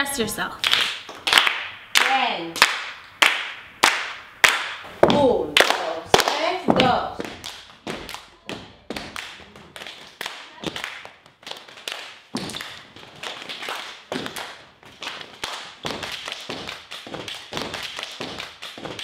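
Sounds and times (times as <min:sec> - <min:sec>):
people clapping: 0:00.6 - 0:19.0
feet stomping: 0:04.6 - 0:19.0.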